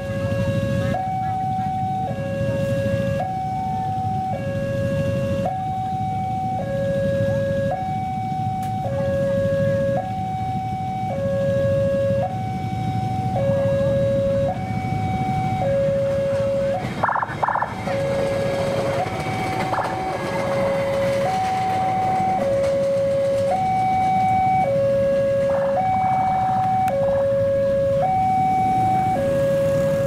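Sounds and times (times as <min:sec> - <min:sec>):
two-tone electronic warning alarm: 0:00.0 - 0:30.0
rattling burst: 0:16.9 - 0:23.5
steady low rumble: 0:24.4 - 0:30.0.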